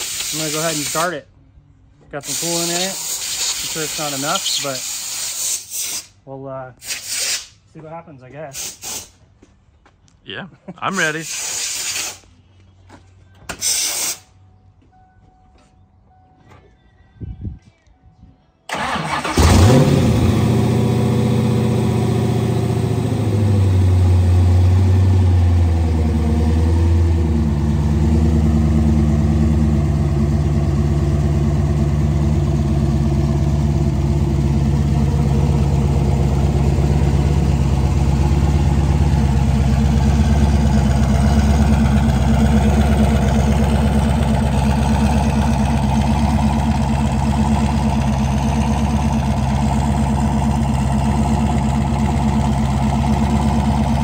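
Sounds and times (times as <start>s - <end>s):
engine cranking: 18.7s - 20.6s
car engine idling: 18.7s - 54.0s.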